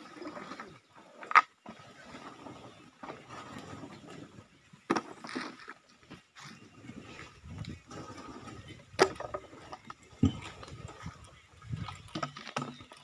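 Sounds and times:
rustling and scraping of raked waste: 0.0 - 13.0.

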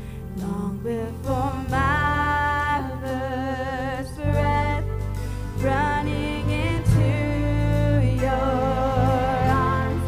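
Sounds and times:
drums: 0.0 - 2.4, 4.2 - 10.0
bass guitar: 0.0 - 10.0
keyboards: 0.0 - 10.0
voices singing held notes: 5.6 - 10.0.

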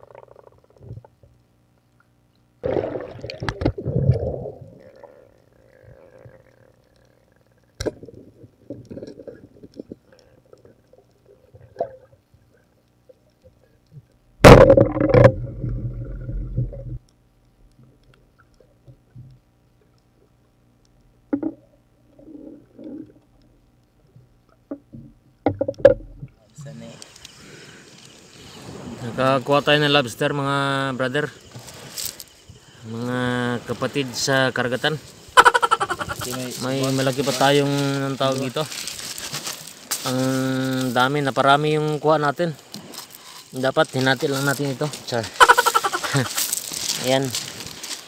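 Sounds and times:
underwater gurgling and bubbling: 2.6 - 12.3, 14.4 - 17.1, 21.4 - 23.6.

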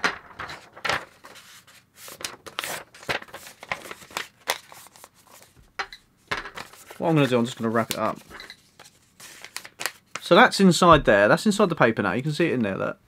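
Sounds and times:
paper rustling: 0.3 - 5.7, 6.5 - 10.3.

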